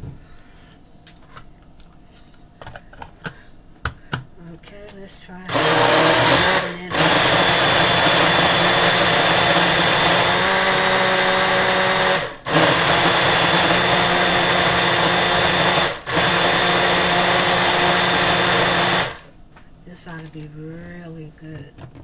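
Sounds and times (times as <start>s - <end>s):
blender motor running: 5.5s - 19.3s.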